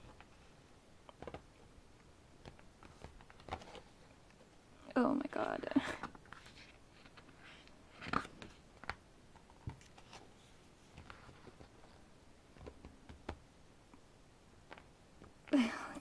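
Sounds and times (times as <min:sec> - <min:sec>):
book pages rustling: 0:02.4 - 0:04.4, 0:06.0 - 0:13.4.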